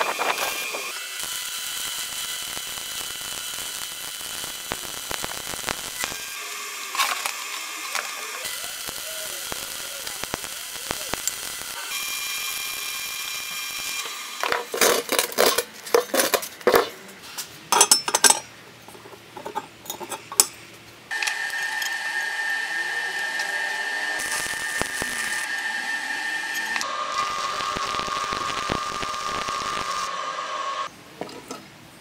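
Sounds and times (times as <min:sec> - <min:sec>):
arc welding crackling hiss: 0:00.0 - 0:14.8, 0:21.1 - 0:30.9.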